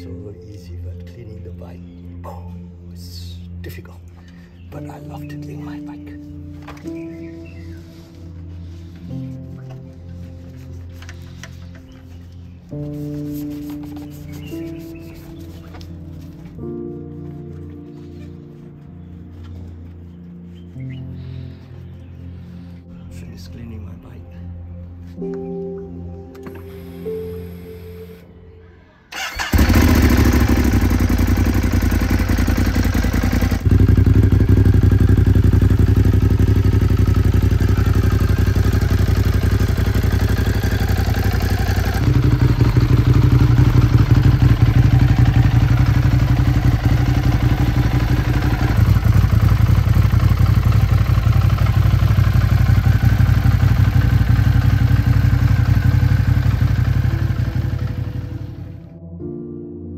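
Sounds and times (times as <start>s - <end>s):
motorcycle engine running: 29.2s - 58.8s.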